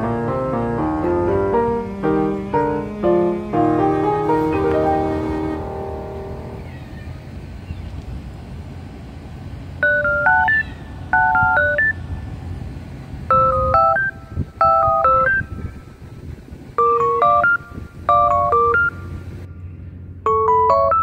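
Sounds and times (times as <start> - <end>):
steady low rumble: 0.0 - 20.3
bell-like electronic melody: 9.8 - 12.0, 13.3 - 15.6, 16.8 - 19.1, 20.3 - 21.0.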